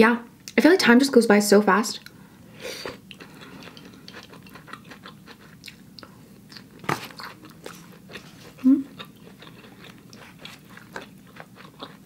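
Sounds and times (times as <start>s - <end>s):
chewing noodles: 2.8s - 12.0s.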